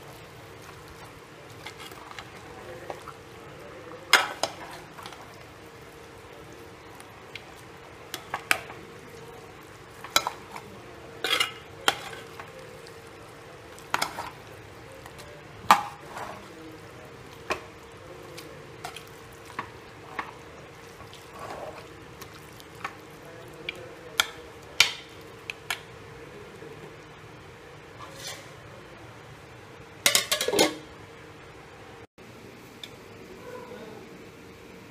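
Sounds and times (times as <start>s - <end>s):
faint steady hum: 0.0s - 34.9s
metal ladle scraping a pot: 11.2s - 12.5s, 21.0s - 21.9s, 27.9s - 28.6s.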